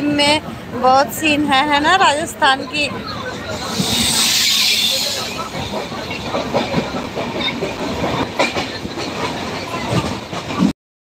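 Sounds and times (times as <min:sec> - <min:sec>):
train wheels rumbling on rails: 0:00.0 - 0:10.7
track clicks and clacks: 0:03.4 - 0:10.7.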